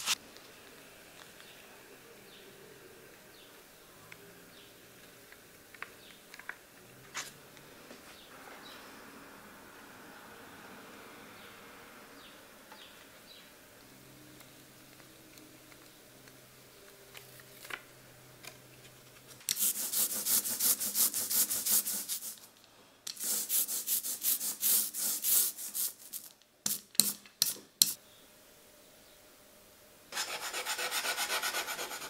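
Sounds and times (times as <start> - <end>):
scratchy rubbing strokes: 0.0 - 0.2, 19.5 - 22.5, 23.1 - 27.2, 30.1 - 32.0.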